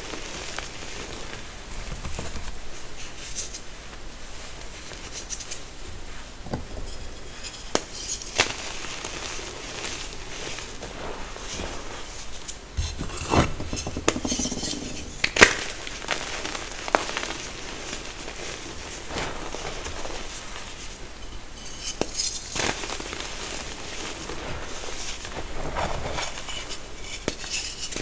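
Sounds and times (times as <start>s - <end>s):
hands crushing chalk: 12.8s - 18.5s.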